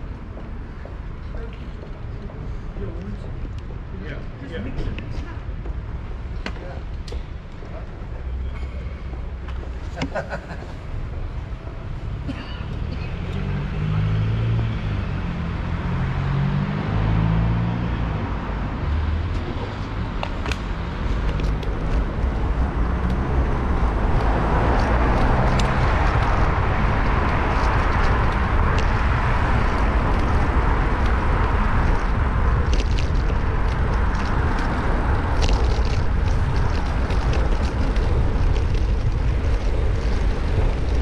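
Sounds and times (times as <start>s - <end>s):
street traffic: 0.0s - 41.0s
wind rumble on microphone: 0.0s - 41.0s
vehicle engine humming: 8.2s - 41.0s
steady rushing noise: 18.0s - 41.0s.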